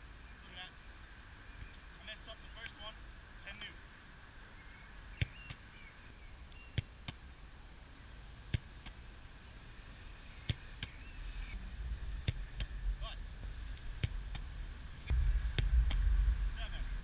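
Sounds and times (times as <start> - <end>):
football struck and caught: 6.7 - 7.2, 10.4 - 11.0.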